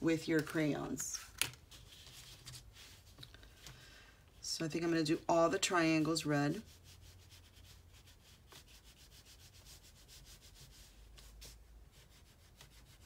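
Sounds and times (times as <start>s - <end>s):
pastel scribbling on paper: 5.9s - 13.0s.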